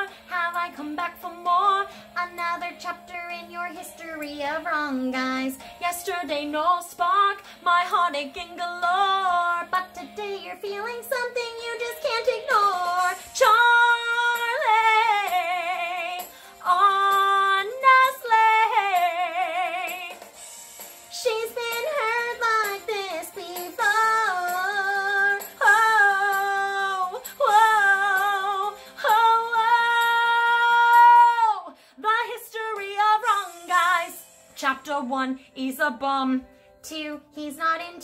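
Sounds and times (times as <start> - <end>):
woman singing show tune: 0.0 - 20.2, 21.1 - 38.0.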